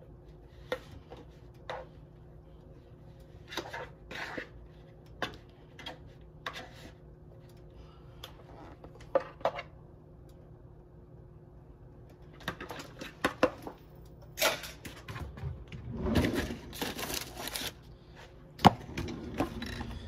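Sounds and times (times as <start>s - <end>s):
plastic wrap crinkling: 16.7s - 17.8s.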